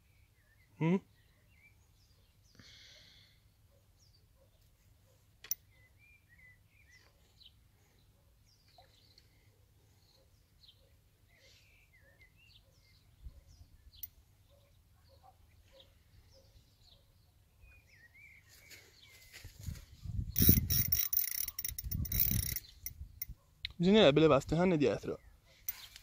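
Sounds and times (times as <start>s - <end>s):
faint bird chirps: 3.8s - 23.5s
fishing reel ratcheting click: 20.4s - 23.3s.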